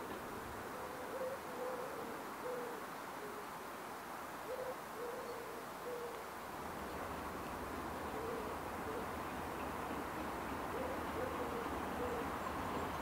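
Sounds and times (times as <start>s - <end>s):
faint steady hiss: 0.0s - 13.0s
dove cooing: 0.6s - 3.5s, 4.4s - 6.2s, 7.9s - 13.0s.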